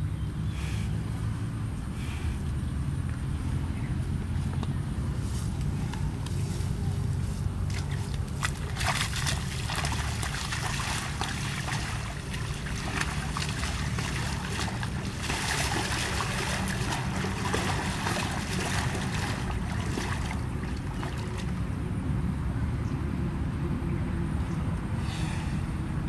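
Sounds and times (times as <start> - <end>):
steady low rumble: 0.0 - 26.0
splashing through muddy water: 5.7 - 21.8.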